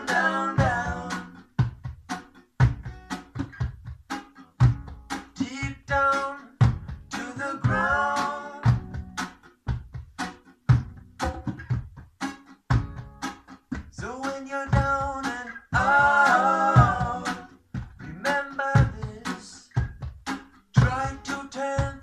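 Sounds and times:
song with sung vocals: 0.0 - 1.7, 5.3 - 9.1, 13.8 - 19.9, 20.7 - 22.0
steady drum beat: 0.0 - 22.0.

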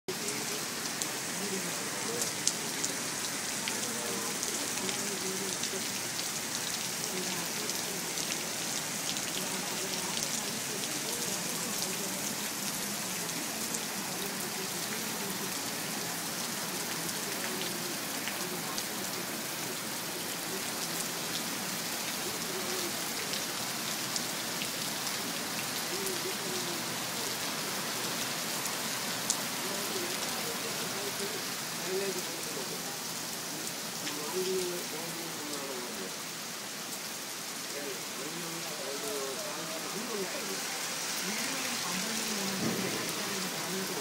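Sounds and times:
rain pouring on street: 0.1 - 44.0.

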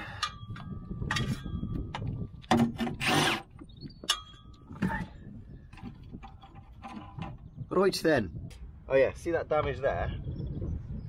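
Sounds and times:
tools scraping on metal: 2.6 - 5.0.

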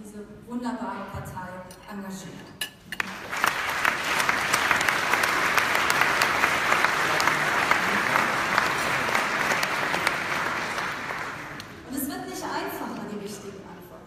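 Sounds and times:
large audience applauding: 3.0 - 11.9.

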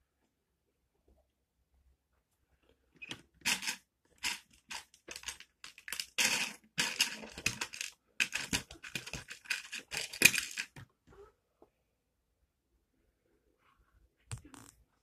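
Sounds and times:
plastic bricks clattering: 3.4 - 10.9.

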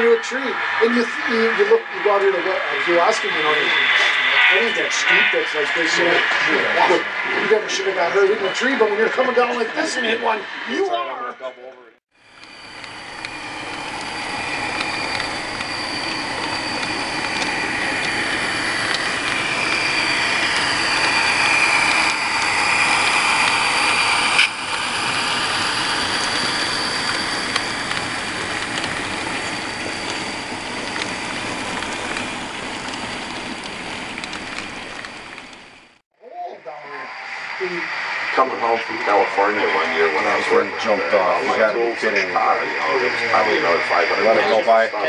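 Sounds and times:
model train wheels on rails: 12.2 - 36.0.

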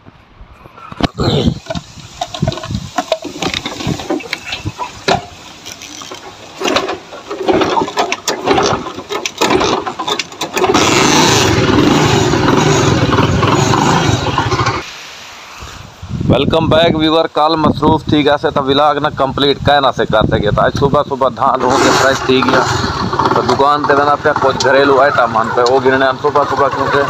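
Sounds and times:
motorcycle kick-start rattling: 1.6 - 14.8, 21.6 - 27.0
motorcycle engine running: 10.6 - 14.8, 21.7 - 25.1.

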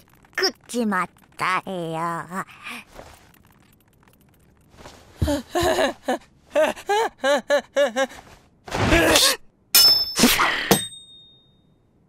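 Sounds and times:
man laughing hysterically: 5.2 - 8.2
sharp metallic clink: 9.8 - 11.6.

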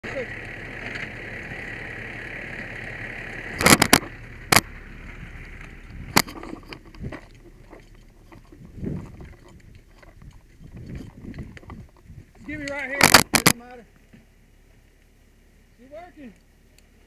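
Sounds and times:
fire engine humming: 0.0 - 8.7
rustling of heavy gear: 5.5 - 13.4.

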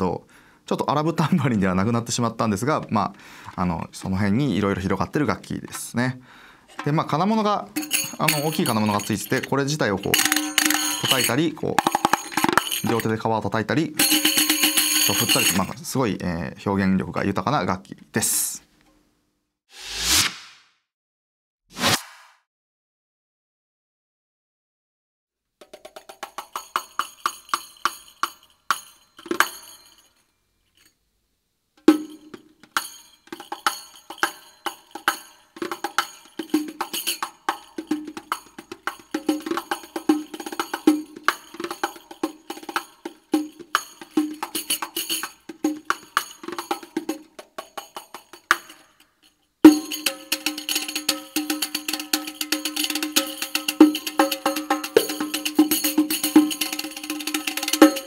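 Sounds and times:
frame tambourine strokes: 7.7 - 13.2, 14.0 - 15.7, 25.6 - 30.2, 31.8 - 58.0
tambourine jingle roll: 7.7 - 13.2, 14.0 - 15.7, 25.6 - 31.0, 31.9 - 58.0.

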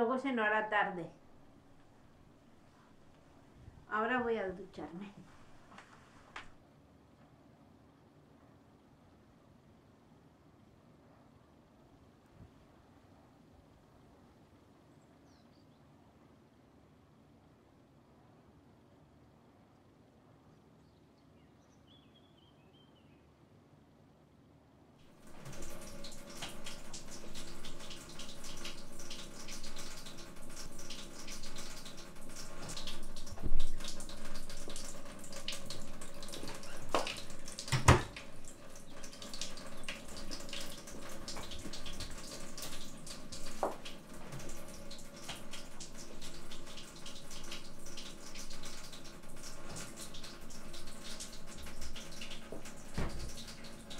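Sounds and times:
water running from tap: 25.1 - 53.9.

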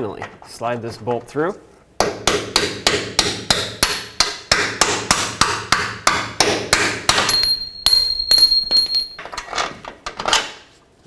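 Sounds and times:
high ringing tone: 7.3 - 9.4.

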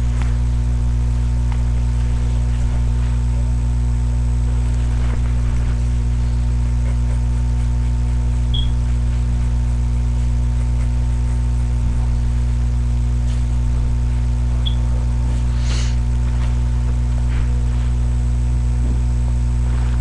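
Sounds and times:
steady low hum: 0.0 - 20.0
short high chirps: 8.5 - 8.7.

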